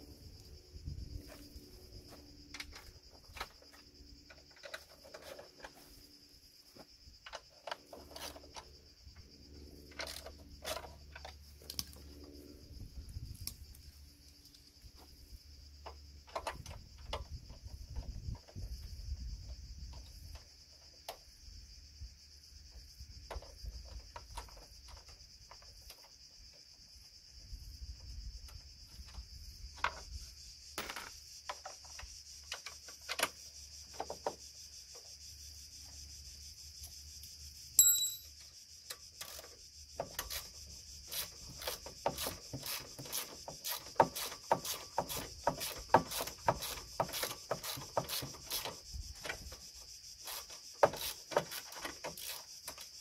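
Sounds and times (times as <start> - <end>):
high-pitched insect buzz: 24.7 - 53.0
hand tool clicking on metal parts: 41.1 - 49.4, 50.2 - 52.9.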